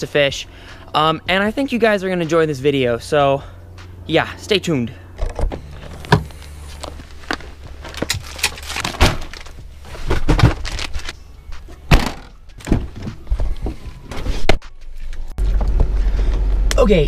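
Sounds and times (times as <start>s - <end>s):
latch thunks and clicks: 5.2s - 6.3s
car door opening: 5.2s - 10.8s.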